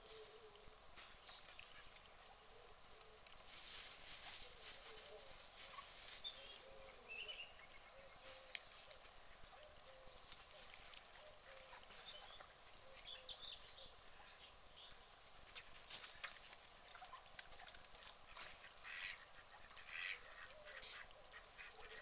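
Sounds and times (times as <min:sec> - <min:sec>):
ducks splashing: 0:15.3 - 0:22.0
ducks murmuring: 0:17.1 - 0:22.0.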